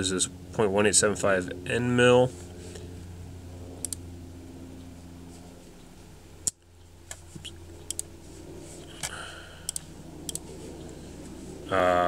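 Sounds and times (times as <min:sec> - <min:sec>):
steady low hum: 0:00.0 - 0:12.0
computer mouse clicking: 0:07.8 - 0:08.1, 0:09.7 - 0:10.4.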